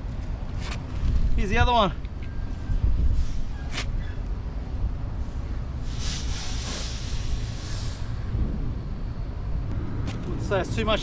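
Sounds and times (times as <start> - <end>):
wind buffeting microphone: 0.0 - 11.0
rushing hiss: 5.8 - 8.4.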